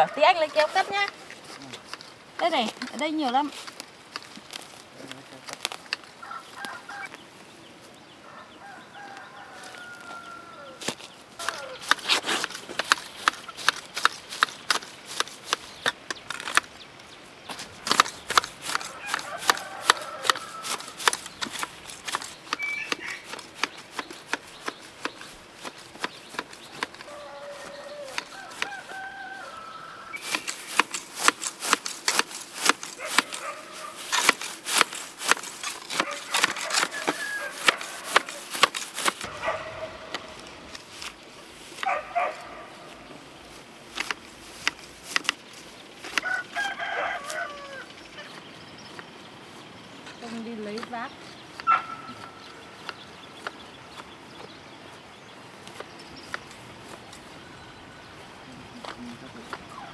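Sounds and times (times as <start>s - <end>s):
rooster crowing: 0.0s - 1.1s, 6.2s - 7.2s, 8.2s - 11.8s, 18.8s - 21.2s, 27.0s - 30.2s, 36.0s - 38.5s, 46.2s - 48.3s
hedge shears snipping grass: 0.0s - 7.9s, 9.0s - 59.9s
chickens clucking: 17.8s - 31.7s.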